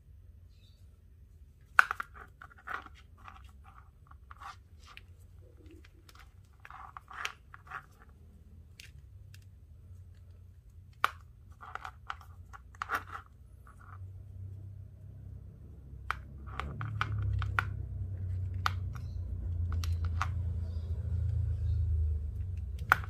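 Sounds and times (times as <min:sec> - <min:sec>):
cord rustling against cord: 0:01.3 - 0:14.7.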